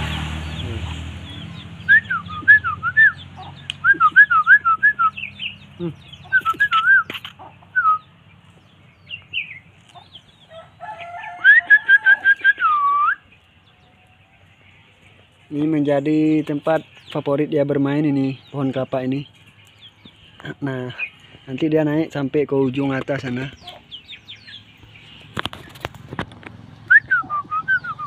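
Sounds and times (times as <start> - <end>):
whistled notes sweeping: 1.8 - 5.5, 6.3 - 8.1, 11.4 - 13.3, 26.8 - 28.0.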